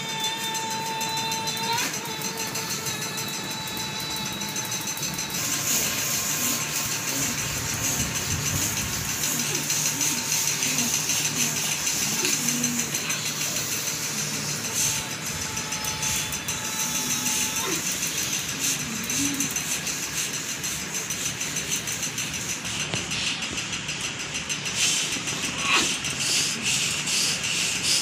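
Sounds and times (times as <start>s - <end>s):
whirring rattling background noise: 0.0s - 28.0s.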